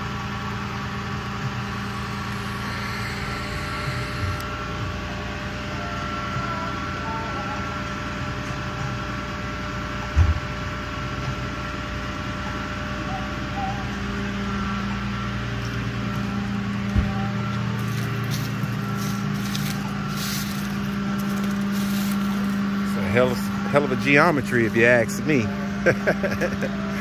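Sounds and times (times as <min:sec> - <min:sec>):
truck engine humming: 0:00.0 - 0:09.7, 0:11.9 - 0:27.0.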